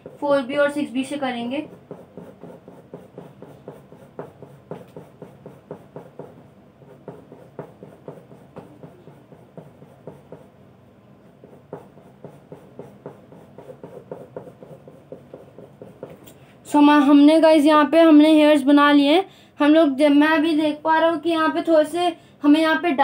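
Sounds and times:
pencil scratching on paper: 0:00.0 - 0:10.6, 0:11.2 - 0:16.3.

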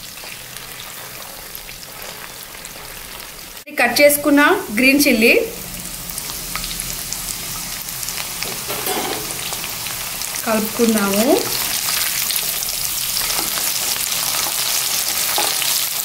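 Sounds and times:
food deep-frying in oil: 0:00.0 - 0:16.0
ladle stirring: 0:08.4 - 0:10.0.

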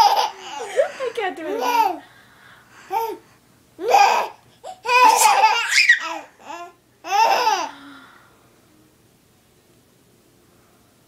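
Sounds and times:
baby laughing and squealing: 0:00.0 - 0:01.0, 0:03.8 - 0:07.7.

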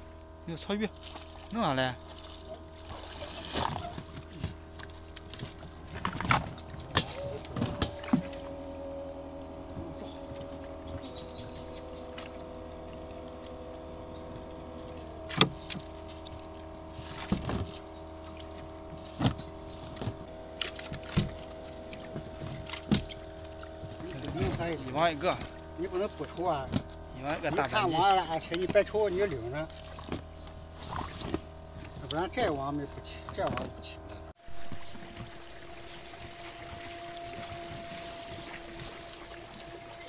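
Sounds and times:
steady mechanical hum: 0:00.0 - 0:40.0
wet net and fish slapping deck: 0:02.4 - 0:07.2.

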